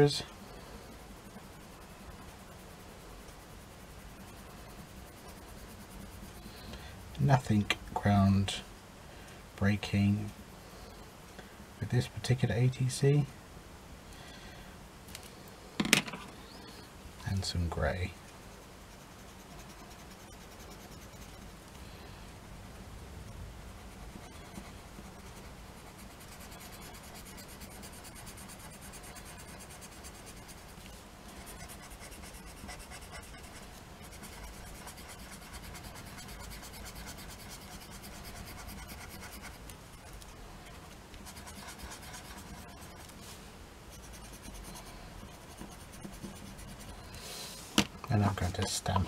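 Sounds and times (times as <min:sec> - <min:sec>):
pencil scratching on card: 0:00.9 - 0:06.7, 0:18.6 - 0:21.6, 0:23.8 - 0:43.2, 0:43.9 - 0:47.1.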